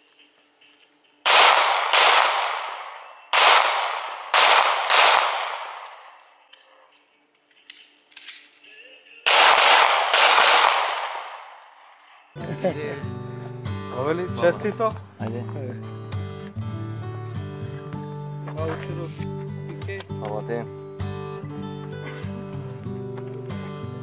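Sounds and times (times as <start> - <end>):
pistol shots with echo: 1.3 - 6.2, 9.2 - 11.9.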